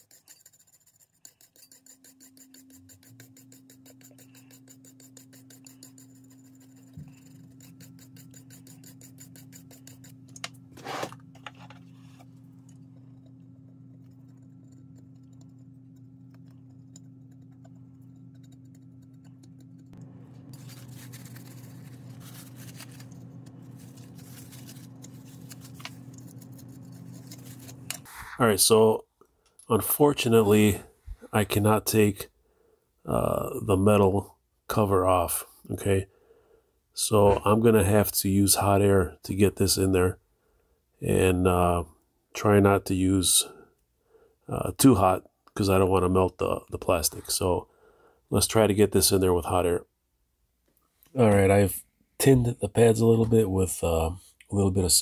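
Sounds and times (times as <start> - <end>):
brush scrubbing circuit board: 0.0 - 28.6
low electrical hum: 0.0 - 55.0.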